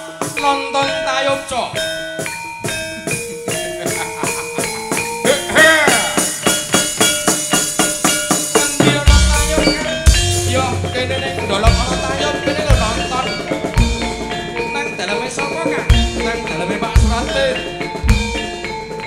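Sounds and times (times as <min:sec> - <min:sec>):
bronze metallophones ringing: 0:00.0 - 0:19.0
deep drum strokes: 0:08.9 - 0:14.8.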